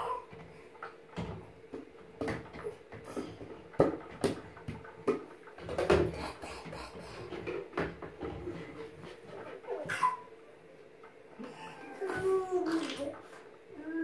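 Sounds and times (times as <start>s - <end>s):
baby vocal sound: 9.7s - 10.3s, 11.4s - 14.0s.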